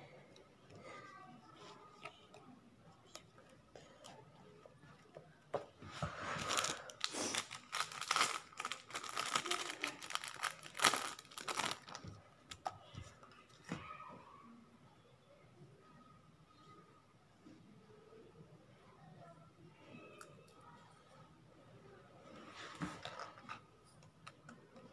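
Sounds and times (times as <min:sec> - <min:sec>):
plastic sheet crinkling: 0:06.3 - 0:12.1.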